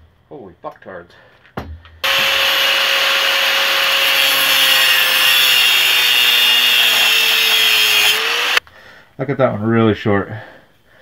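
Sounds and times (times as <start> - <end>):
angle grinder cutting steel: 2.0 - 8.6.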